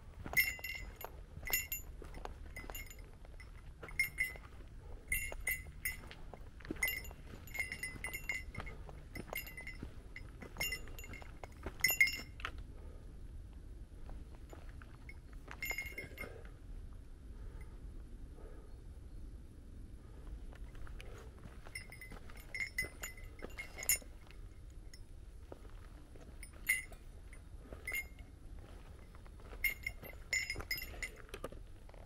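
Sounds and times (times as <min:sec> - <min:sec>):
small metal bell jingling: 0:00.2 - 0:12.5, 0:14.5 - 0:16.4, 0:21.5 - 0:25.1, 0:26.2 - 0:31.5.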